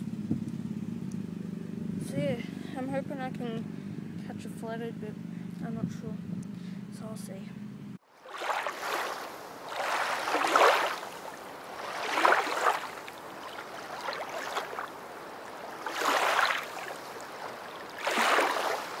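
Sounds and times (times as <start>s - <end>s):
rushing water surging: 8.1s - 19.0s.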